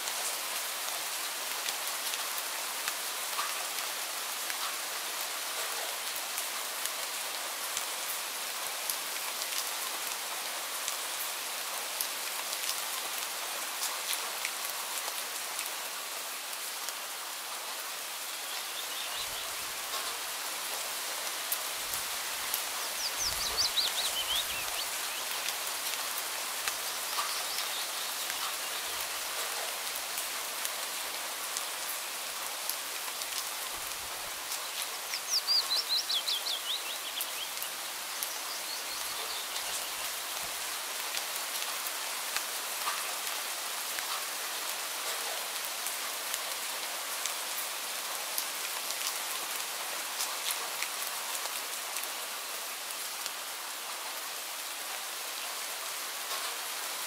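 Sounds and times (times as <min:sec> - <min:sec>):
gentle rain dripping: 0:00.0 - 0:57.0
faint bird chirps: 0:22.8 - 0:25.4, 0:34.7 - 0:40.2.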